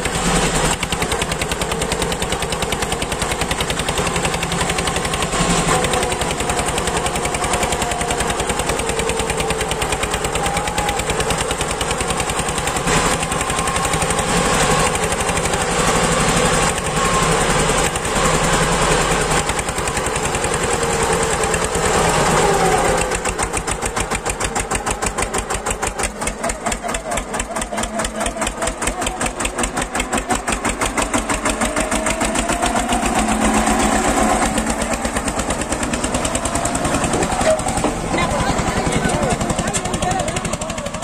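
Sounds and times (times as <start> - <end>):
tractor diesel engine chugging: 0.0 - 41.0.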